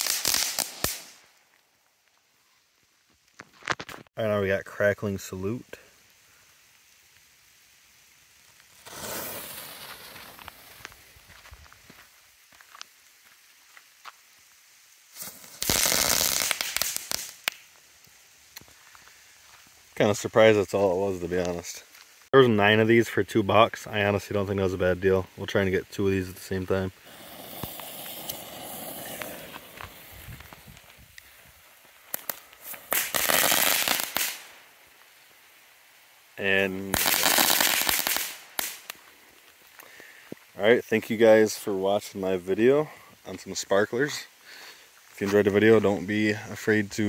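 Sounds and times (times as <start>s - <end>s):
firework hiss: 0.0s - 1.4s, 5.0s - 22.3s, 25.9s - 40.6s
firework crackling burst: 0.0s - 1.5s, 5.5s - 11.4s, 15.0s - 18.6s, 26.5s - 39.2s
firework ticks: 8.4s - 11.0s, 15.2s - 18.8s, 27.0s - 34.6s.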